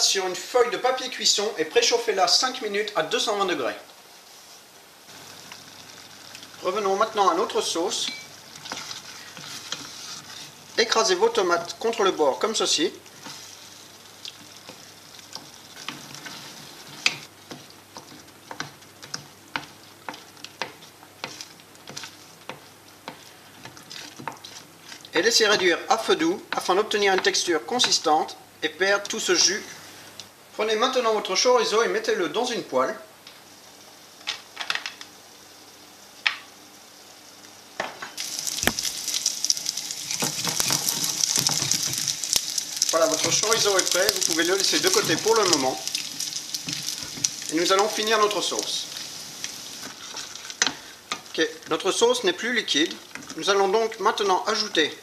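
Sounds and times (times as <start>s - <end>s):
tomatoes simmering hiss: 0.0s - 55.0s
sausage sizzling in a pan: 1.4s - 30.8s, 33.4s - 55.0s
wooden spoon scraping a saucepan: 7.7s - 12.0s, 13.1s - 25.6s, 40.0s - 42.1s, 43.0s - 49.1s, 49.8s - 51.3s.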